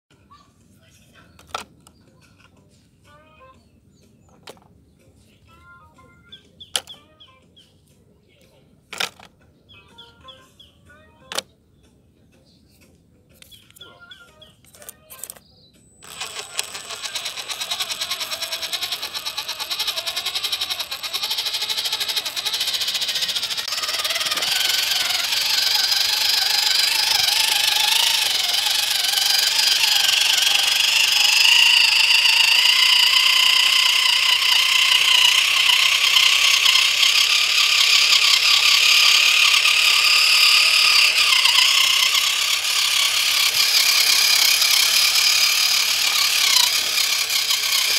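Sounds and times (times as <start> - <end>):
toy car motor whining: 6.8 - 7.2, 8.9 - 10.6, 13.4 - 47.9.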